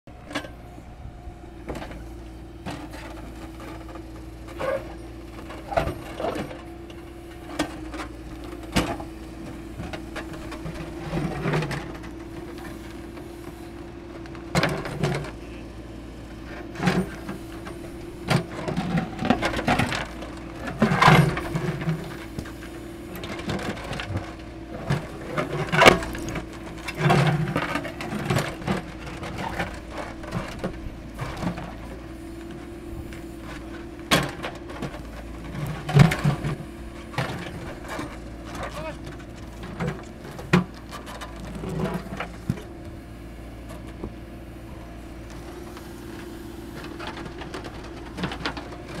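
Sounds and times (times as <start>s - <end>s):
diesel engine running: 0.1s - 49.0s
metal bucket clanking and scraping rock: 2.7s - 44.0s, 44.8s - 49.0s.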